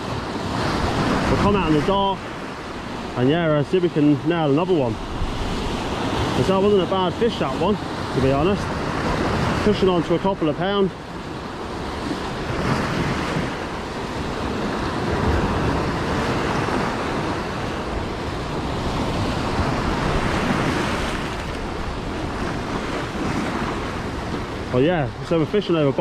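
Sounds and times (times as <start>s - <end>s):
wind buffeting microphone: 4.6s - 9.8s, 11.0s - 25.4s
surf breaking on boulders: 18.8s - 24.4s.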